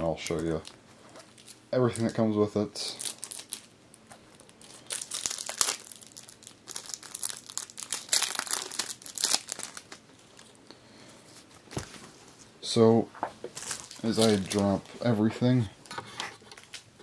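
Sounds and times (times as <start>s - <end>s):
packaging crinkling and tearing: 0.2s - 2.2s, 2.8s - 10.6s, 13.5s - 15.2s, 16.5s - 16.9s.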